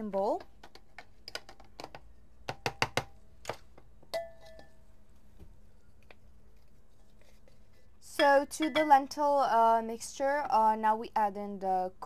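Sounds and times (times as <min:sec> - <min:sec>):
plastic bowl knocking on glass: 0:01.3 - 0:03.2
glass clink ringing: 0:04.1 - 0:04.9.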